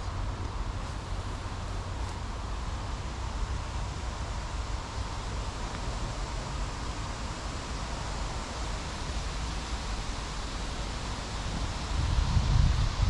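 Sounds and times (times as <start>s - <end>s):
wind rumbling on microphone: 11.4s - 13.0s.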